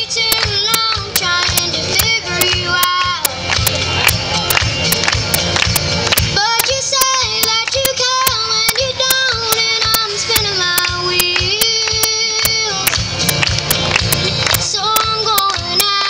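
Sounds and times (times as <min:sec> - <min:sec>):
girl singing: 0:00.0 - 0:03.3, 0:06.4 - 0:13.0, 0:14.6 - 0:16.0
country backing track: 0:00.0 - 0:16.0.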